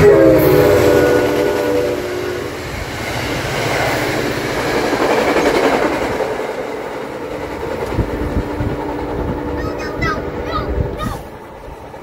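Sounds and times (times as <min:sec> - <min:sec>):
train horn: 0:00.0 - 0:02.6
train wheels clattering on rails: 0:00.0 - 0:09.8.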